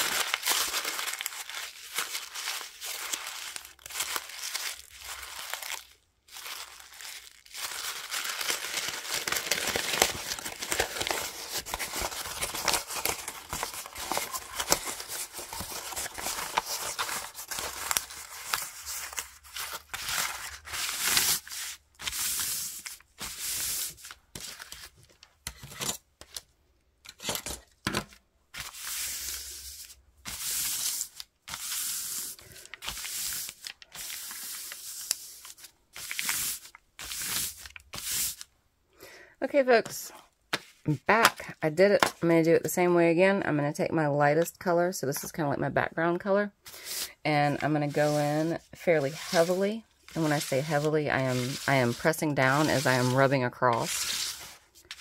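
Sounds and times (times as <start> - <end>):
paper bag crumpling: 0.0 - 24.9
paper crinkling: 0.0 - 26.5, 27.2 - 38.5, 46.7 - 55.0.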